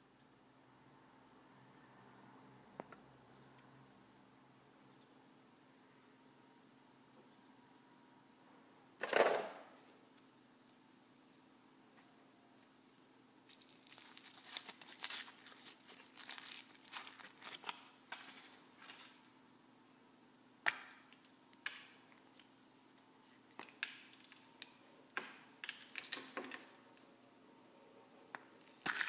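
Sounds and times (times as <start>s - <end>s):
foil wrapper crinkling and tearing: 13.4s - 19.2s, 28.6s - 29.0s
chocolate shell snapping: 20.6s - 22.0s, 28.4s - 29.0s.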